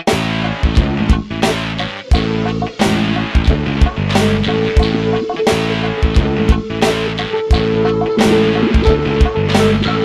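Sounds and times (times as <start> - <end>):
band music with guitar and drums: 0.0 - 10.0.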